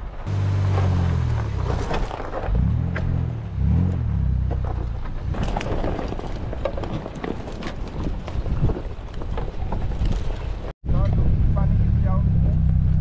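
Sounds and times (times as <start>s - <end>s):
vehicle rumbling on rough track: 0.0s - 13.0s
car engine revving: 0.2s - 5.4s.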